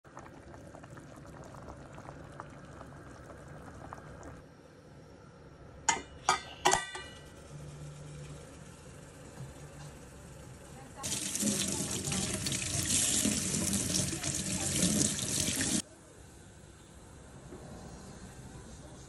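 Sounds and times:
pressure cooker bubbling: 0.0s - 4.4s, 7.8s - 15.8s
metallic clanks with ring: 5.9s - 7.3s.

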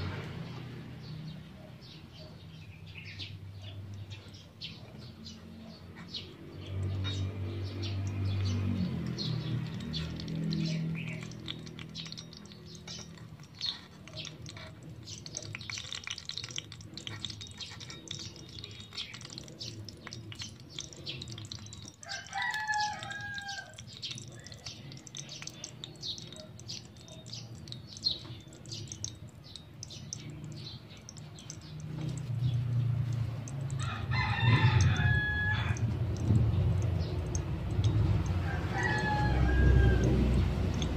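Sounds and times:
rooster crowing: 22.0s - 23.8s, 33.8s - 36.0s, 38.3s - 40.4s.

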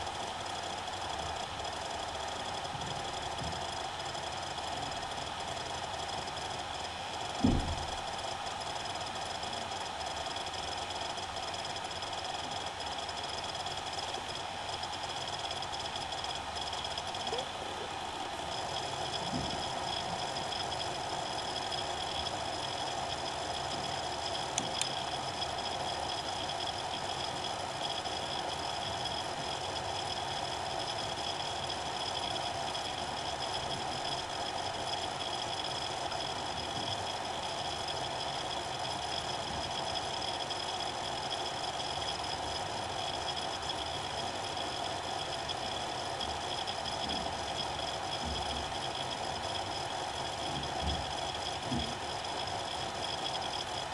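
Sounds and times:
hard drive tick: 0.0s - 53.9s
hard drive whirring: 0.0s - 53.9s.

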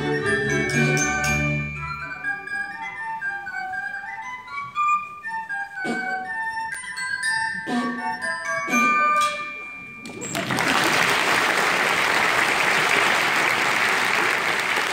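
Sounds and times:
ringing bell-like notes: 0.0s - 3.0s, 6.7s - 10.4s
audience applause: 10.1s - 14.9s.

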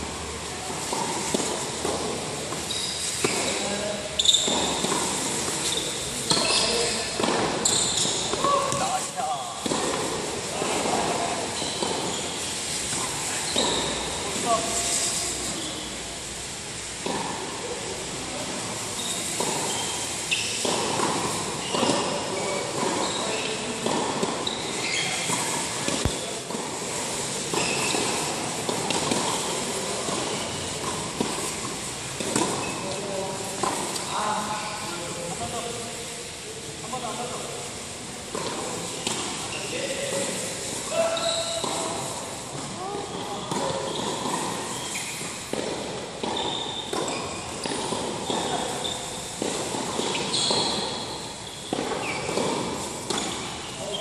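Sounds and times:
steady hall noise: 0.0s - 54.0s
rackets hitting tennis ball: 0.4s - 36.1s, 36.8s - 54.0s
tennis ball bouncing: 0.5s - 15.9s, 17.0s - 35.6s, 38.1s - 54.0s
sharp tennis ball hits: 9.6s - 15.0s, 23.8s - 32.9s.

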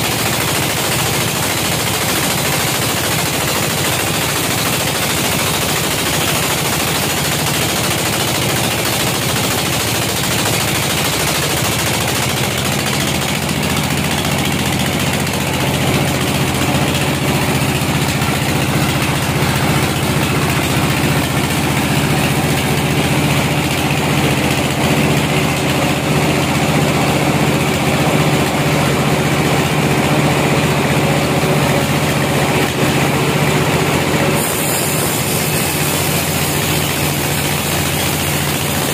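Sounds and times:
band saw hiss: 34.4s - 36.2s.

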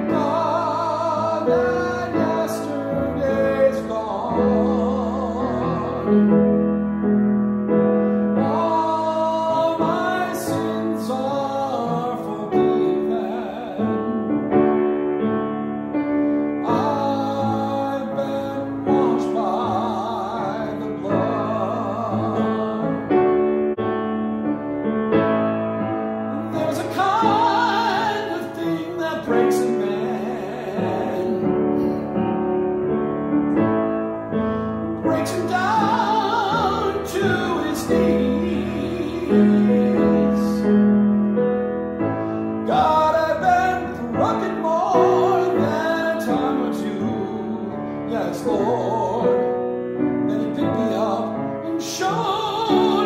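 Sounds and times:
person singing with vibrato: 0.0s - 7.0s, 8.0s - 14.8s, 16.5s - 23.7s, 26.2s - 32.5s, 34.4s - 41.1s, 42.1s - 53.0s
grand piano: 0.0s - 53.0s.

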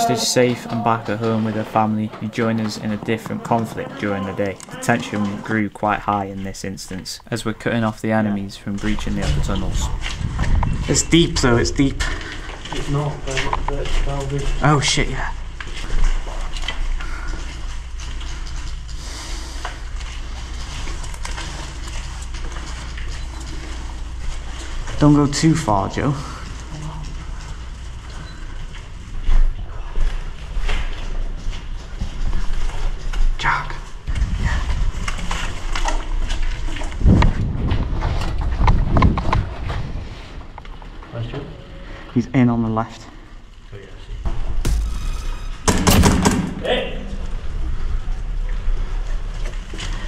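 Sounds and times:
steady low rumble: 5.5s - 28.2s, 44.2s - 50.0s
heavy thumps: 44.3s - 47.4s.

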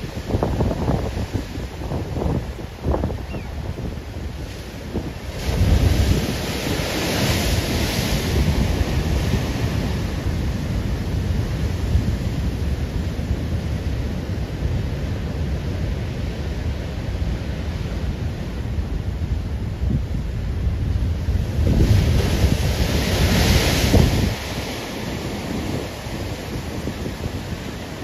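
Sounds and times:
wind buffeting microphone: 0.0s - 14.9s, 16.4s - 28.0s.

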